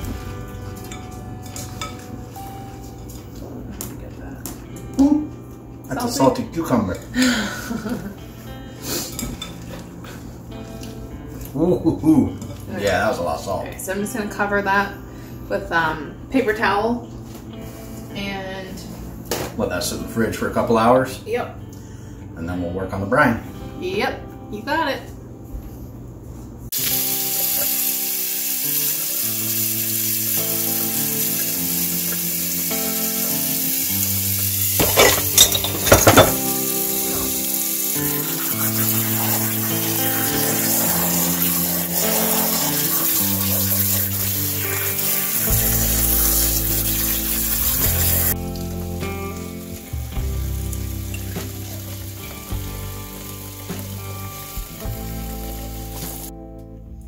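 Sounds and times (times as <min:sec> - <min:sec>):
background music with held notes: 0:00.0 - 0:26.0, 0:26.7 - 0:57.0
tap water running into sink: 0:34.7 - 0:54.0.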